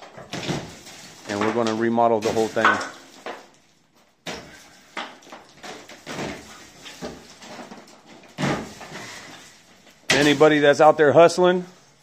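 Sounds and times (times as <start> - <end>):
plaster and metal strips pried down: 0.0 - 10.7
debris crumbling and rattling: 0.0 - 11.2.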